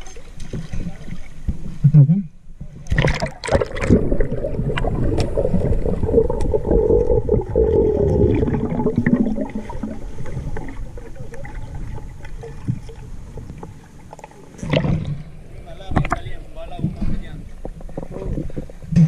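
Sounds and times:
muffled underwater rush: 0:00.0 - 0:19.0
underwater clicks: 0:02.8 - 0:09.4, 0:15.9 - 0:19.0.

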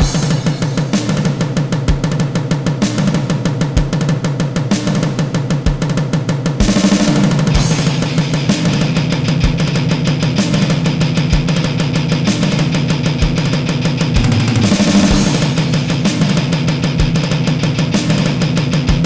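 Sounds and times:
heavy metal music: 0:00.0 - 0:02.2, 0:07.2 - 0:19.0.

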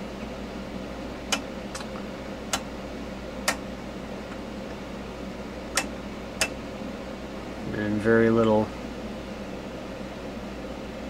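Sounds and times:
steady low hum: 0:00.0 - 0:11.0
rotary switch clicks: 0:01.3 - 0:01.9, 0:03.4 - 0:03.6, 0:05.8 - 0:06.6.

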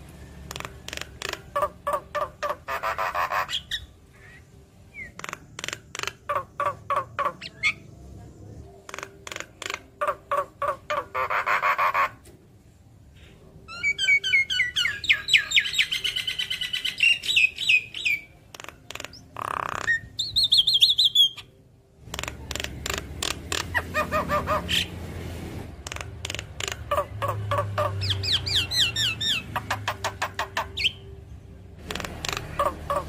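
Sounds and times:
bird harsh clicking calls: 0:00.4 - 0:03.8, 0:05.0 - 0:07.8, 0:08.8 - 0:12.2, 0:15.0 - 0:24.9, 0:25.8 - 0:31.0, 0:31.8 - 0:33.0.

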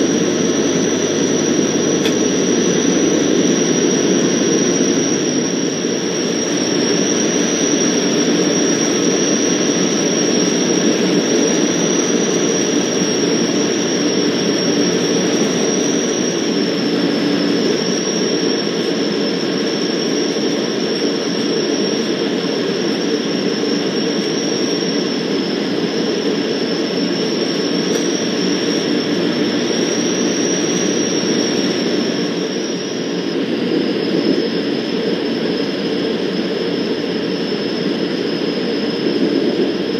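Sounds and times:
aircraft engine and propeller drone: 0:00.0 - 0:39.9
thin high whine: 0:00.0 - 0:39.9.

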